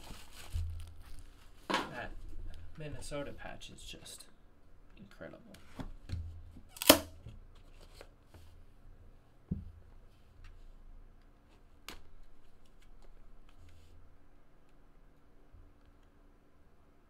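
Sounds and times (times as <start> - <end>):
cardboard rustling and scraping: 0.0 - 3.1.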